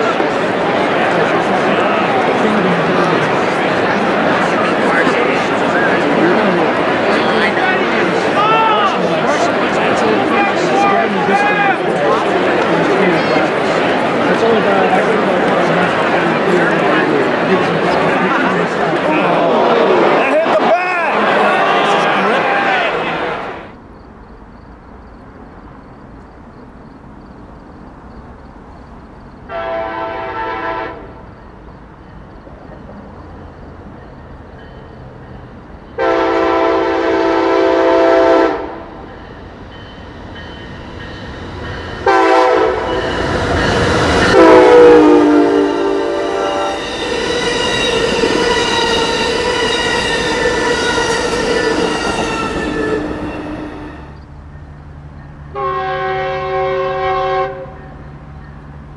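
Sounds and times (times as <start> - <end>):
train rushing by: 0.0 - 58.9
train horn blasts: 29.5 - 31.3, 36.0 - 39.1, 42.0 - 54.2, 55.5 - 58.0.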